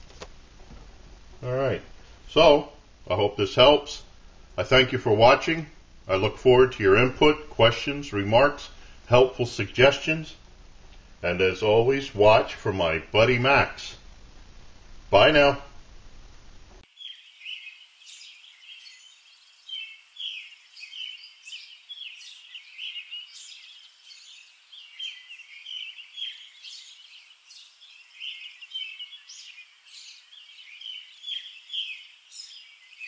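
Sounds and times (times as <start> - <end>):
small birds chirping: 16.8 - 33.0.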